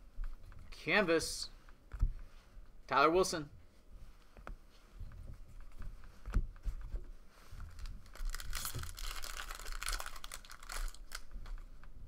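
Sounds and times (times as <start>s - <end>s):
wrapper tearing and crinkling: 7.7s - 11.6s.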